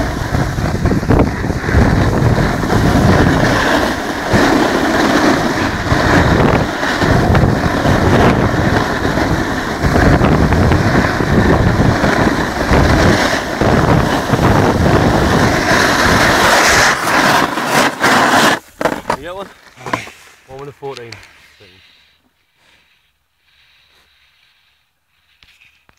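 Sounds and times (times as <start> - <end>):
wind buffeting microphone: 0.0 - 17.0
snowboard edge scraping snow: 0.0 - 25.9.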